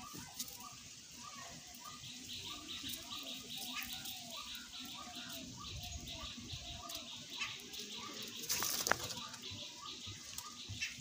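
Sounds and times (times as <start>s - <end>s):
faint bird chirps: 0.0s - 11.0s
wings fluttering: 8.1s - 9.5s.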